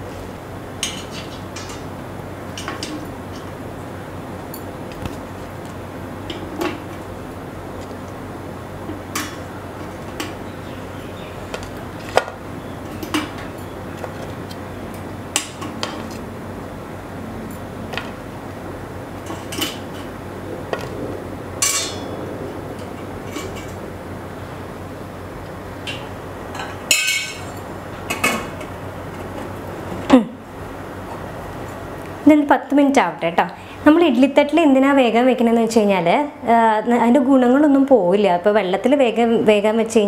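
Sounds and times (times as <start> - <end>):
metal lid clatter: 21.6 - 22.1
metal plates clinking: 21.6 - 22.1, 25.8 - 29.4.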